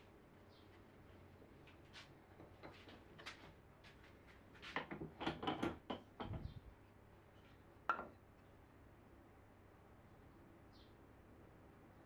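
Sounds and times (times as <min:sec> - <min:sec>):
light wooden knocks and clicks: 0:04.7 - 0:06.6.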